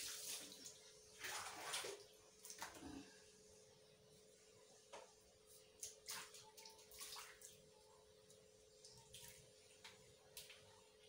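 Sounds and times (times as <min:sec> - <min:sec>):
water splashing and spraying: 0:00.0 - 0:00.6.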